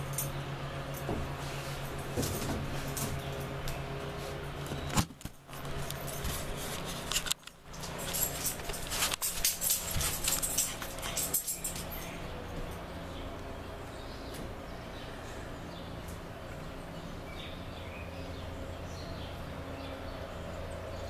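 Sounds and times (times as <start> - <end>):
dog collar tags jingling: 7.7 - 12.3.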